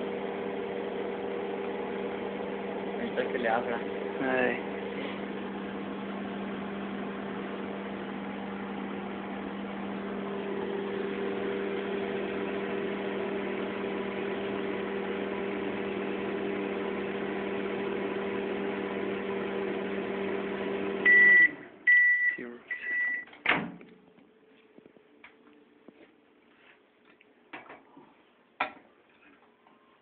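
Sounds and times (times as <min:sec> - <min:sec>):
microwave oven humming: 0:00.0 - 0:23.3.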